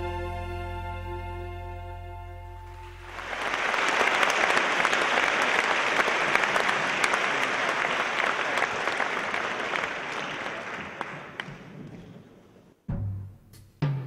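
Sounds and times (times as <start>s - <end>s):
audience applauding: 2.7s - 12.3s.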